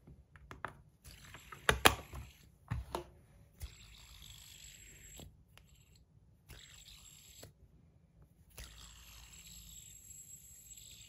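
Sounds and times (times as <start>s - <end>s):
fidget spinner whirring: 1.0s - 2.6s, 3.5s - 7.6s, 8.5s - 11.0s.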